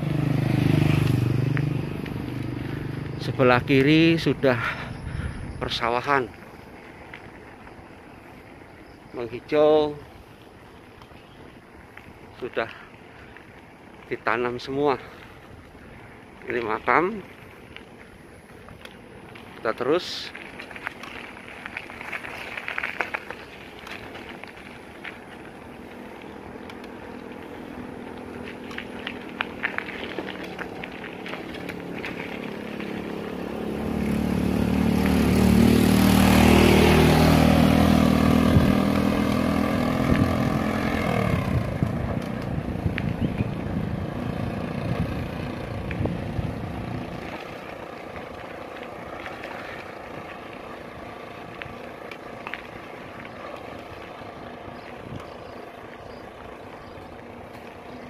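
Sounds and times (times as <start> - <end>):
small motorcycle engine passing: 0.0 - 58.0.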